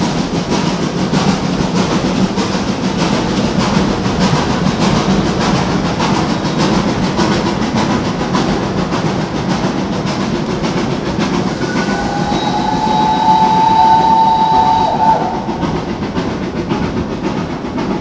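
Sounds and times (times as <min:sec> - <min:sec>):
steam locomotive rumbling: 0:00.0 - 0:18.0
steam whistle blast: 0:11.5 - 0:15.8.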